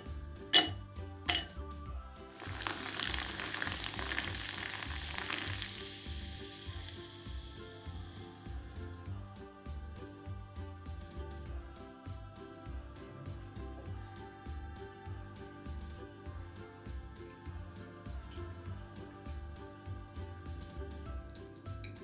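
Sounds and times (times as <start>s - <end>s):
ice cube clinking into glass: 0.6s - 1.6s
soft drink pouring and fizzing: 2.3s - 9.1s.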